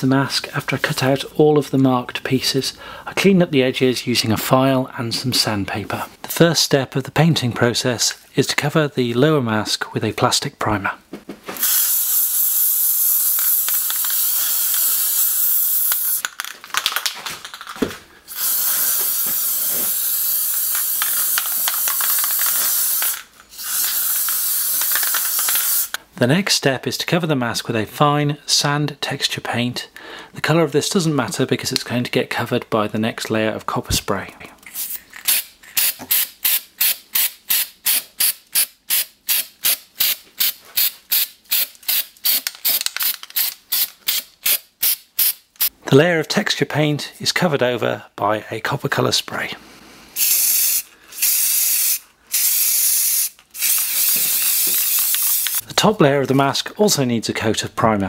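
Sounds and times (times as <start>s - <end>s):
aerosol spray can hissing: 11.6s - 16.2s, 18.3s - 26.0s, 34.8s - 45.7s, 50.2s - 55.6s.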